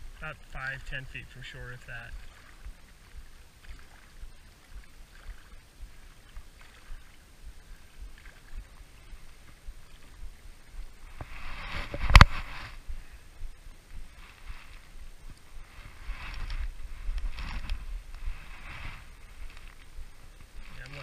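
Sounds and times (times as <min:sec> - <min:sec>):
waves lapping on rocks: 0:00.0 - 0:12.8, 0:14.0 - 0:21.0
wind rumble on microphone: 0:01.9 - 0:21.0
rustling: 0:11.1 - 0:12.9, 0:13.9 - 0:21.0.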